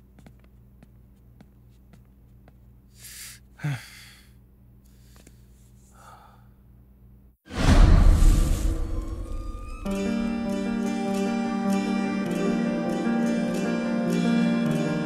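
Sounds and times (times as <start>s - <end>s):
man breathing out heavily: 2.9s - 6.6s.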